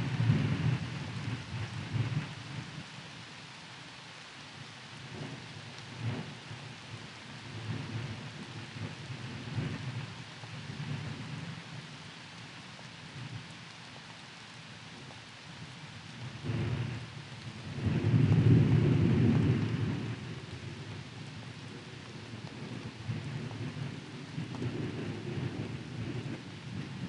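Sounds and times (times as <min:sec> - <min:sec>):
steady rain: 0:00.0 - 0:27.0
thunder rumbling: 0:16.3 - 0:27.0.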